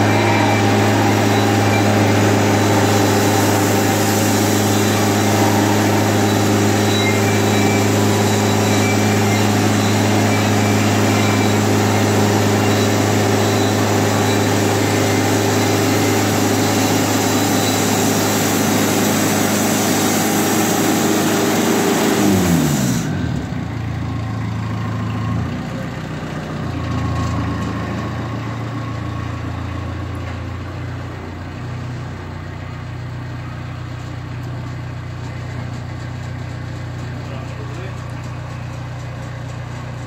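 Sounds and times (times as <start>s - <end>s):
band sawmill sawing log: 0.0s - 23.3s
engine idling: 0.0s - 40.0s.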